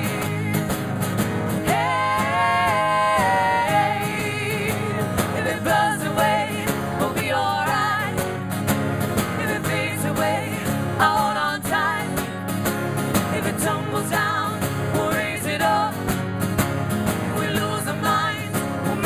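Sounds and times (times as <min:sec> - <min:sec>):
person singing: 0:00.0 - 0:00.7, 0:01.6 - 0:08.2, 0:13.3 - 0:15.9
drums: 0:00.0 - 0:03.2
strummed acoustic guitars: 0:00.0 - 0:19.0.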